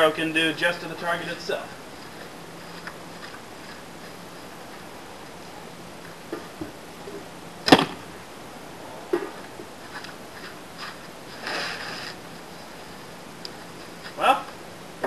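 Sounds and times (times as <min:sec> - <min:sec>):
arrow hitting target thud: 0:07.7 - 0:08.0.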